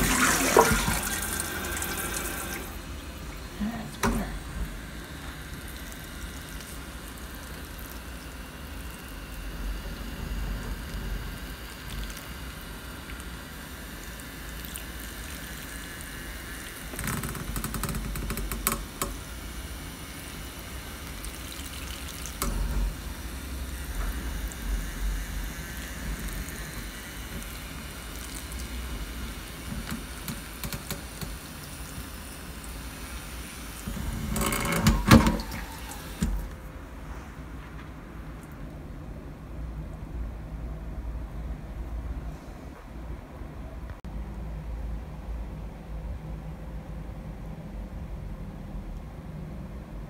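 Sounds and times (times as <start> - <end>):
water running from tap: 0.0 - 19.3, 20.1 - 36.6.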